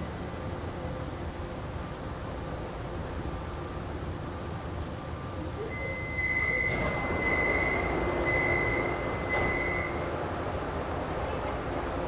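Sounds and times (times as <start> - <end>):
train hum: 0.0 - 12.0
high warning beeps: 5.7 - 10.0
sliding doors opening: 6.4 - 10.3.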